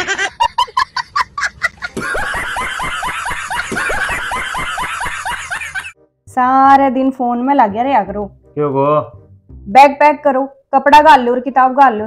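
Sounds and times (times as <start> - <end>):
person snickering: 0.0 - 5.8.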